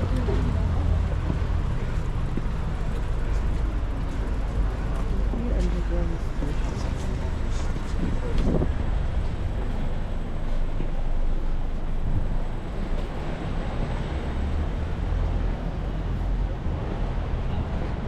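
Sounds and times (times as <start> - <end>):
bicycle road noise: 0.0 - 18.0
city traffic: 0.0 - 18.0
wind noise on microphone: 6.7 - 10.1.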